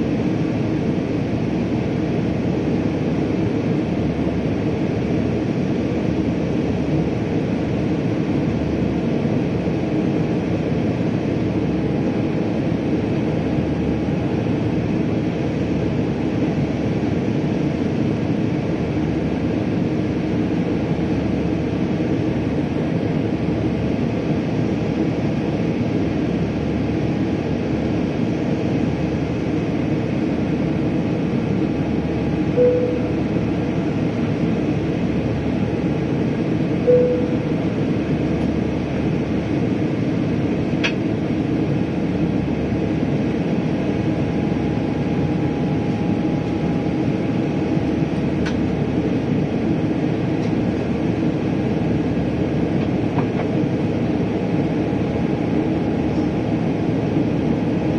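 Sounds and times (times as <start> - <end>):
airplane cabin roar: 0.0 - 57.9
short tones: 32.6 - 33.3, 36.9 - 37.6.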